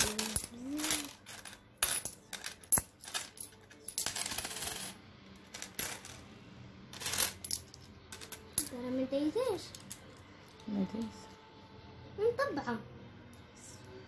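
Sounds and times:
coins clinking on glass: 0.0 - 6.2, 6.9 - 8.7.

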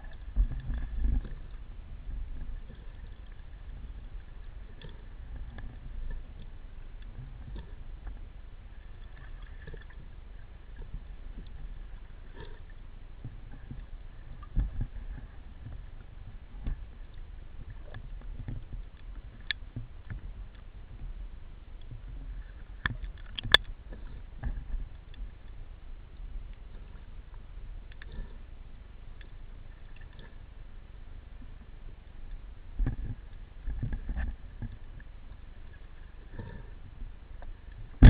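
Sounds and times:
underwater clicks and knocks: 0.0 - 1.6, 13.2 - 15.8, 16.6 - 21.1, 21.8 - 25.3, 32.8 - 35.1
underwater rumble of moving water: 0.0 - 38.0.

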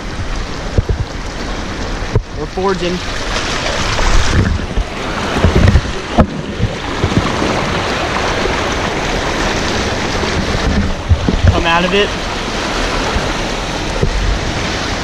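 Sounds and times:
tire splashing through water: 0.0 - 15.0
low thumps: 4.0 - 7.9, 10.2 - 11.9, 13.9 - 14.6.

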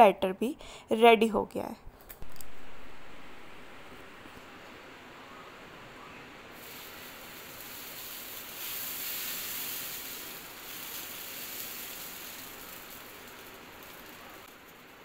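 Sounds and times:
batter sizzling on hot pan: 6.5 - 15.0.

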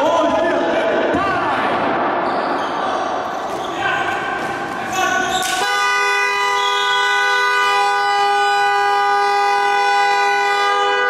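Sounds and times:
court noise: 0.0 - 10.3
buzzing game horn blast: 5.6 - 11.0.

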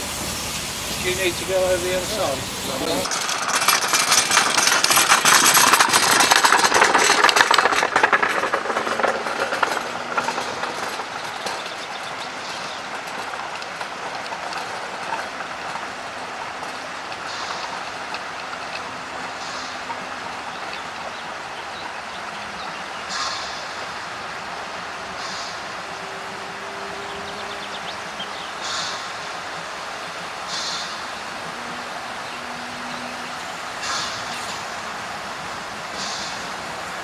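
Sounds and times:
steam locomotive pulling away: 0.0 - 37.0.

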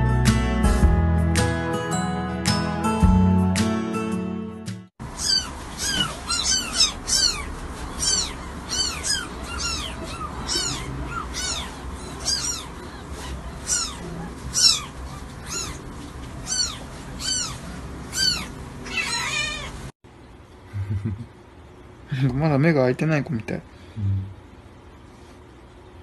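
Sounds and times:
kittens mewing: 5.1 - 19.9.

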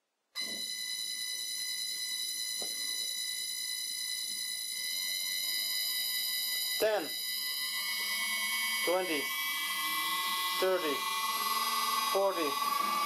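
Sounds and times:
high-pitched drive whine: 0.4 - 13.0
faint motor hum: 7.4 - 13.0.

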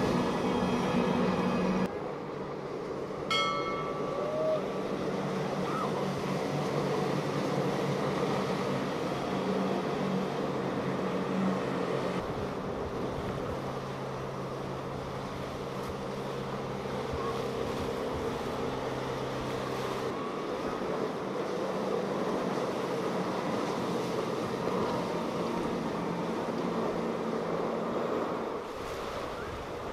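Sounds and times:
outboard motor drone: 0.0 - 29.9
rushing wake water: 0.0 - 29.9
wind: 0.0 - 29.9.

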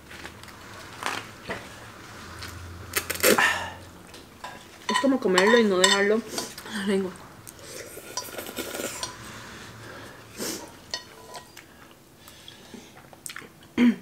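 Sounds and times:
chopsticks scraping a saucepan: 4.4 - 6.6, 7.6 - 11.6.

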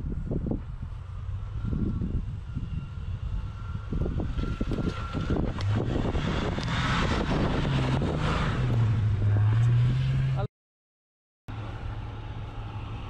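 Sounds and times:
car engine revving: 1.1 - 10.5.

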